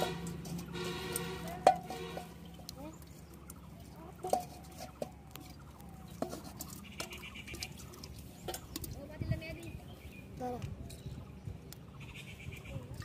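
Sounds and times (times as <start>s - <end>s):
fish tapping in metal bowl: 0.0s - 2.7s, 3.4s - 9.1s.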